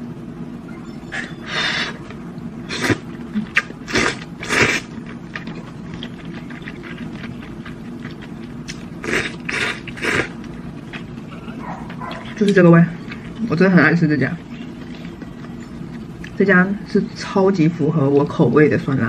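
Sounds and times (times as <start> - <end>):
person slurping noodles: 2.7 - 5.0, 9.0 - 10.4.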